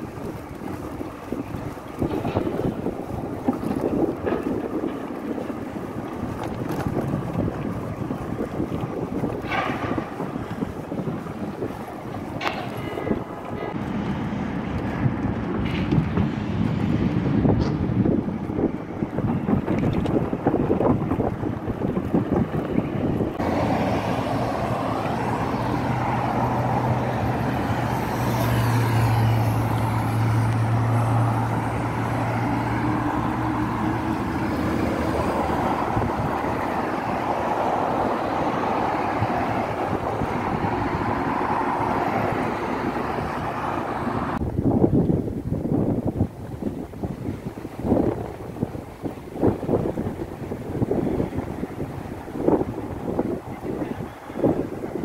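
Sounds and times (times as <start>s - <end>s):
road traffic passing: 0.0s - 55.0s
wind buffeting microphone: 0.0s - 55.0s.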